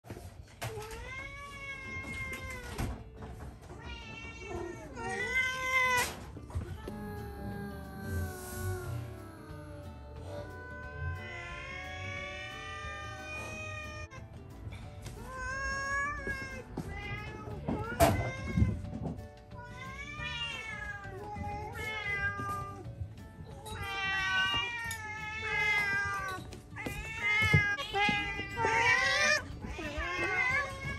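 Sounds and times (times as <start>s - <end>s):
cats meowing: 0.5s - 14.2s, 15.0s - 30.9s.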